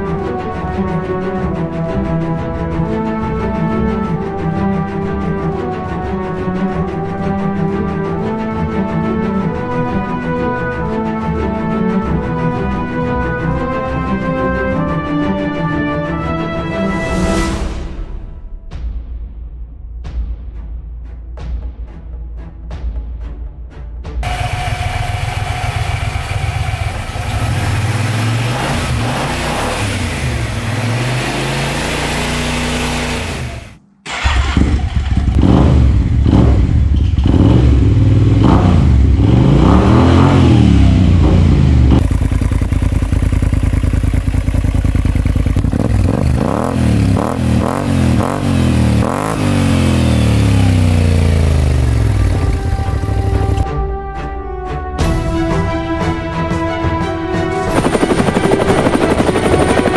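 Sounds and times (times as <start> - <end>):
scooter engine revving: 24.2 - 53.6, 57.7 - 59.9.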